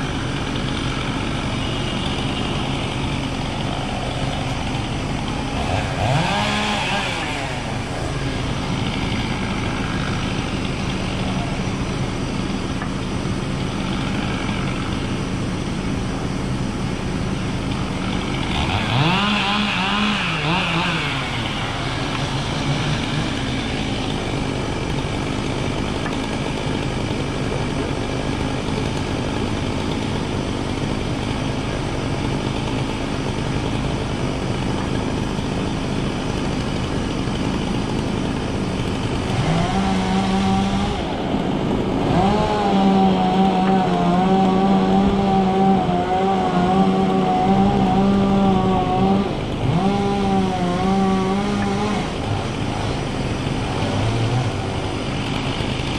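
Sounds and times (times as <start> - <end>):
engine running: 0.0 - 55.9.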